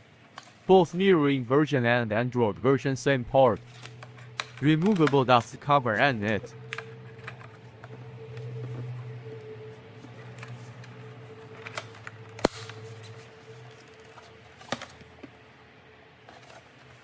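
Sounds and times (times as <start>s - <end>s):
low steady hum: 0.0s - 17.0s
plastic housing rubbing and clicking: 6.2s - 9.4s.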